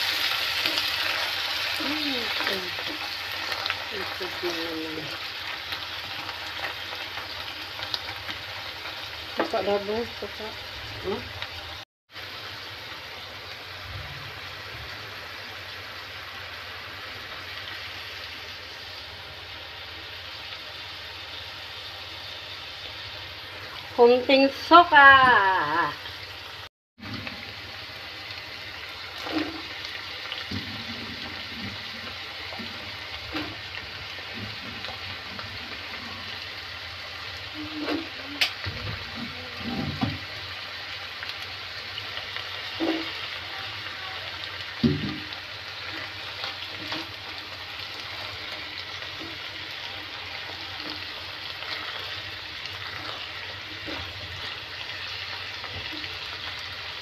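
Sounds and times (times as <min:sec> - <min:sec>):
food sizzling in a pan: 0:00.0 - 0:57.0
spatula scraping a pan: 0:52.8 - 0:54.6.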